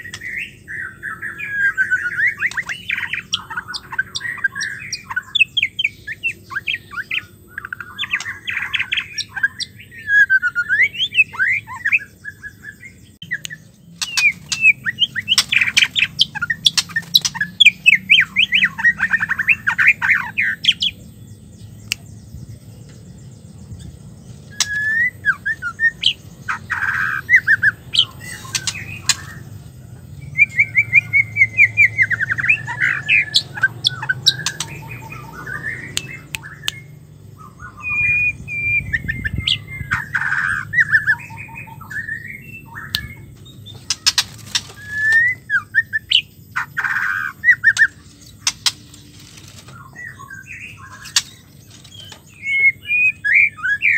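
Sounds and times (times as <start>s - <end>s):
bird chattering and trilling: 0.0s - 53.9s
sharp clicks: 42.9s - 44.9s, 47.7s - 49.8s, 51.0s - 52.3s.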